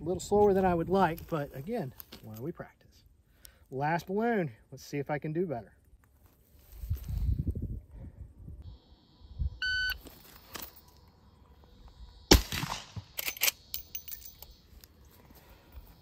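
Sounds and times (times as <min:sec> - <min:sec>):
shot timer beep: 0:09.6 - 0:10.0
rifle shot: 0:12.3 - 0:13.7.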